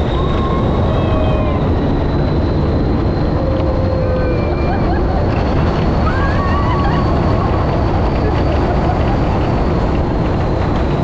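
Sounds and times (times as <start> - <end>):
rush of wind: 0.0 - 11.0
vehicle rolling noise: 0.0 - 11.0.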